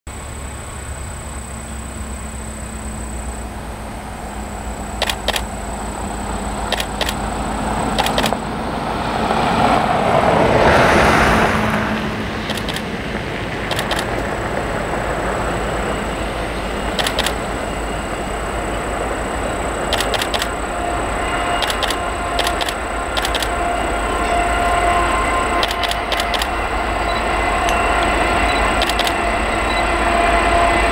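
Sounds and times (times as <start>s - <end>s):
road vehicle passing: 0.2s - 30.9s
sharp clicks: 5.0s - 5.6s, 6.7s - 7.2s, 8.0s - 8.4s, 12.4s - 12.9s, 13.7s - 14.2s, 17.0s - 17.4s, 19.9s - 20.6s, 21.6s - 23.5s, 25.6s - 26.5s, 28.8s - 29.2s
thin high whine: 15.9s - 30.9s.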